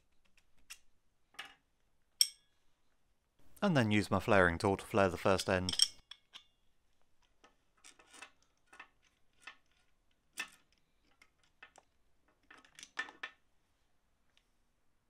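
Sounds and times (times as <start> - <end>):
light metallic clicks and clinks: 5.4 - 6.5.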